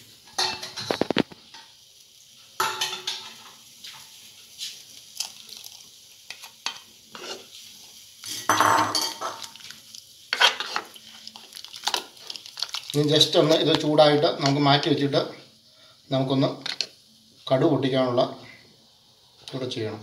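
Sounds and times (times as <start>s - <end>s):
ladle stirring curry in a pot: 5.2s - 7.7s, 9.2s - 14.6s.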